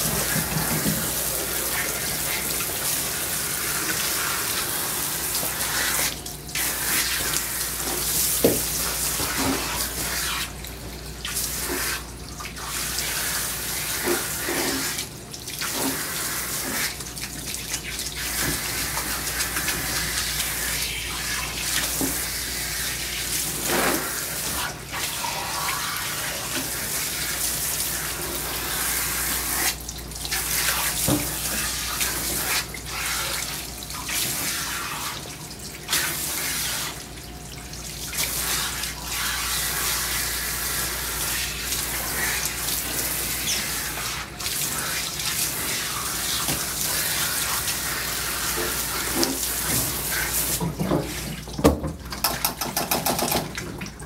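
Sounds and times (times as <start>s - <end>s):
hose sprayer spraying water: 0.0s - 10.6s, 18.2s - 29.8s.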